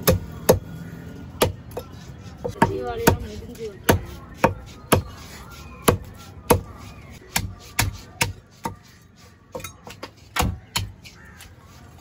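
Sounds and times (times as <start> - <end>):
knife chopping fish on wood: 1.4 - 8.9, 9.6 - 11.5.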